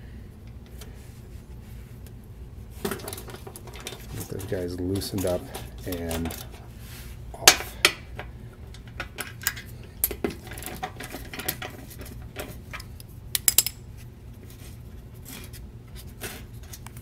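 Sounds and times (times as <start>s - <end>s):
low steady hum: 0.0s - 17.0s
metal wrench clicking on bolts: 13.3s - 13.8s.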